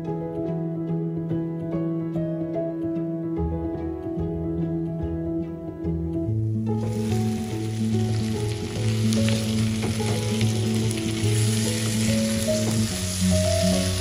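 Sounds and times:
background music: 0.0s - 14.0s
pork sizzling in a pan: 6.7s - 14.0s.

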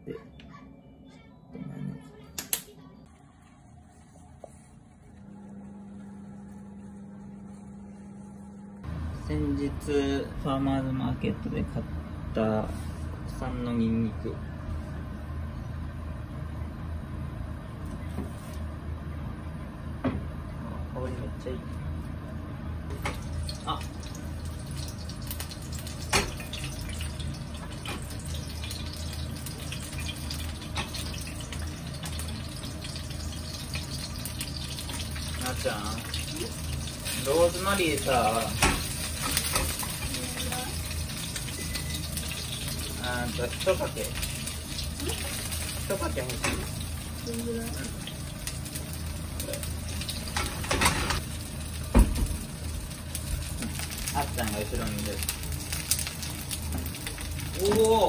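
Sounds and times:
low steady hum: 0.0s - 58.0s
garlic sizzling in oil: 22.9s - 58.0s.

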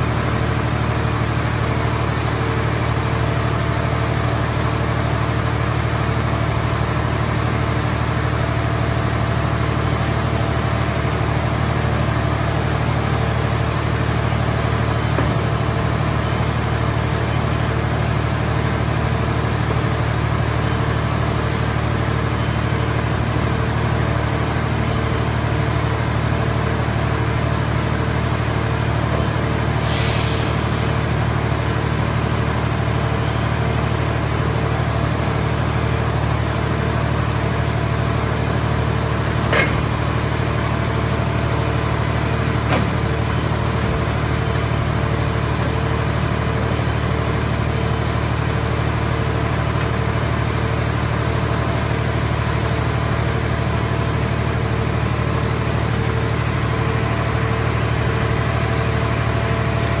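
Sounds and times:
hydraulic power unit humming: 0.0s - 60.0s
metallic clanks: 39.5s - 40.0s.

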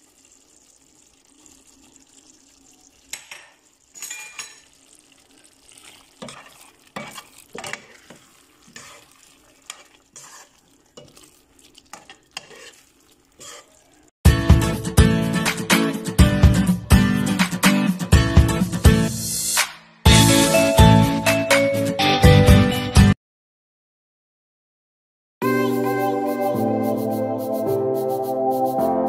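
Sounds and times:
faint steady sizzle: 0.0s - 14.2s
ladle scraping and knocking pan: 5.7s - 13.7s.

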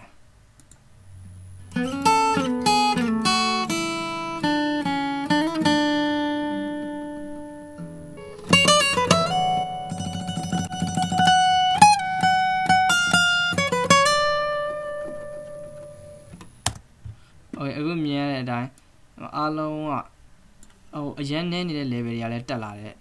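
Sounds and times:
guitar solo with pitch slides: 1.6s - 16.3s.

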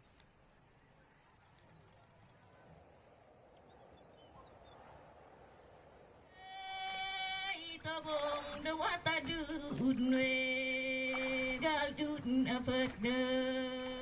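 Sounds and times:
faint hiss: 0.0s - 14.0s
person singing long note: 6.4s - 14.0s.

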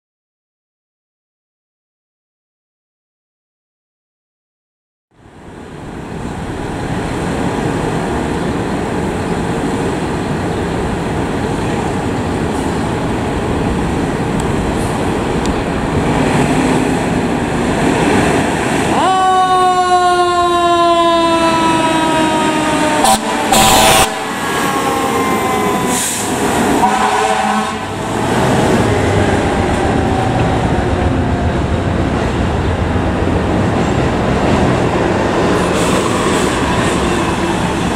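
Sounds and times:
loud horn blast: 18.9s - 29.4s
diesel engine rumbling: 23.2s - 37.9s.

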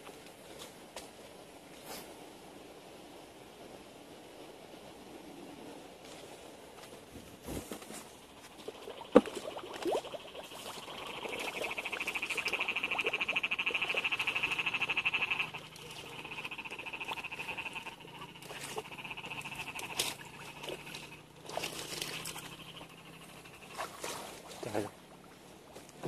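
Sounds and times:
frog pulsing trill: 8.3s - 24.2s.

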